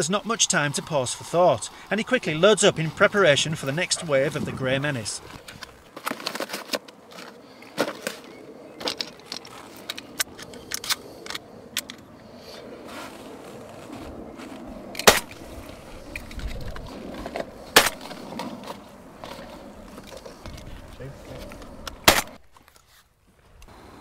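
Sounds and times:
loud shotgun shots: 15.0s - 15.4s, 22.0s - 22.4s.

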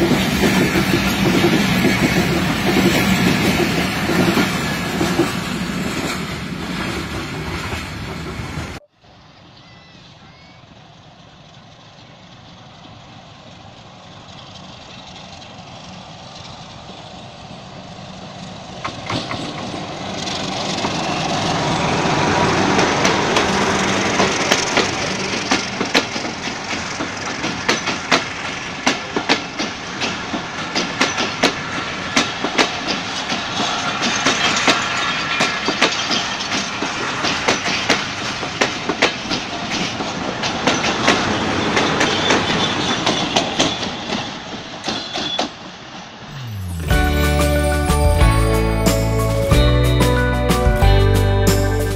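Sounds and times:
train wheels clattering over joints: 0.0s - 8.6s, 18.8s - 21.5s, 22.6s - 45.6s
diesel locomotive passing: 0.0s - 51.9s.

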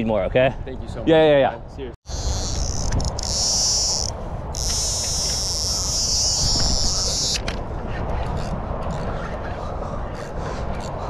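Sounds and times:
fishing reel buzzing: 2.1s - 7.5s.

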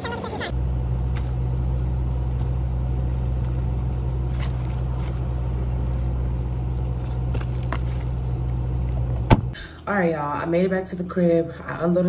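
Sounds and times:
low drone inside car: 0.0s - 9.6s.

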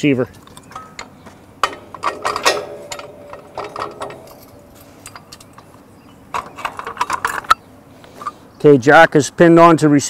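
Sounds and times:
metal clanks and rattles: 0.3s - 7.6s
small metal clicks: 0.3s - 7.6s.

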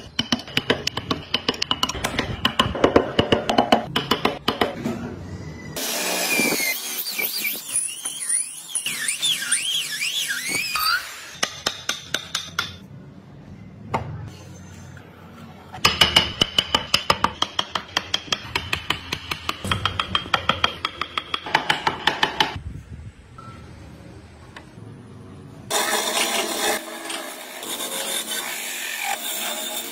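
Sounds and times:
hammer striking chisel into wood: 11.4s - 12.8s, 15.8s - 22.6s.

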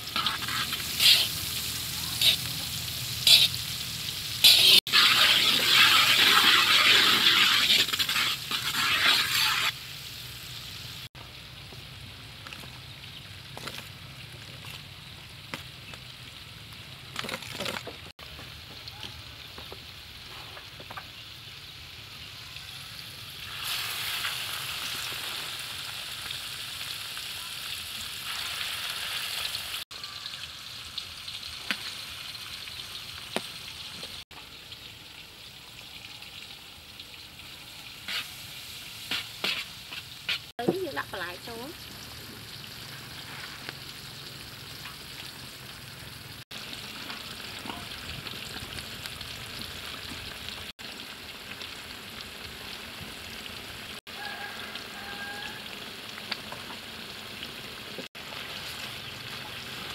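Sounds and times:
hot oil sizzling: 0.0s - 59.9s.

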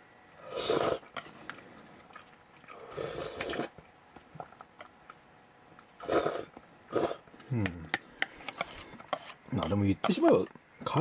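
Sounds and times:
person slurping noodles: 0.4s - 1.2s, 2.7s - 3.8s, 6.0s - 7.2s.

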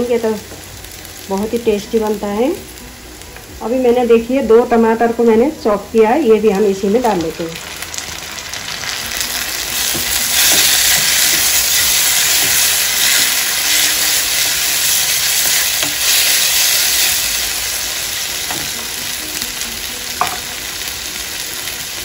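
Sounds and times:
food sizzling in hot oil: 0.0s - 22.0s
spatula scraping wok: 8.9s - 19.2s.

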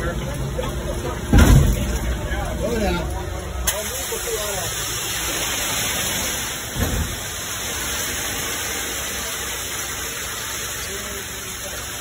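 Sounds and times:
concrete pump running: 0.0s - 12.0s
low thump: 1.3s - 2.0s.

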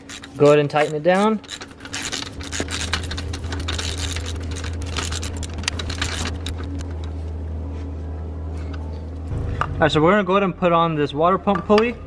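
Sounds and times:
hand ratchet clicking: 0.0s - 6.9s
steady low hum: 0.0s - 12.0s.

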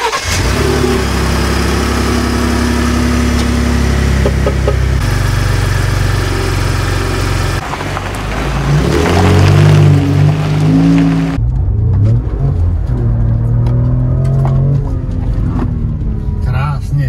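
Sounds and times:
truck engine idling and revving: 0.0s - 17.0s.

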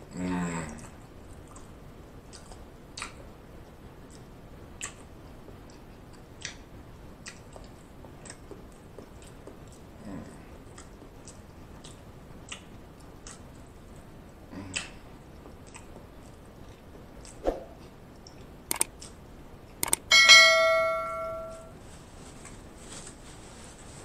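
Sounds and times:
soft chewing: 0.0s - 20.0s, 21.8s - 24.0s
sharp clicks: 18.7s - 18.9s, 19.8s - 20.1s
bright bell ding: 20.1s - 21.7s.

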